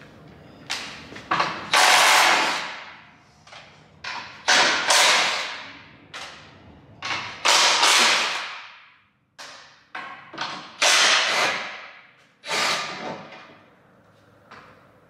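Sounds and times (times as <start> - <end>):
impact wrench hammering: 1.4 - 3.0, 4.0 - 6.4, 7.0 - 13.4.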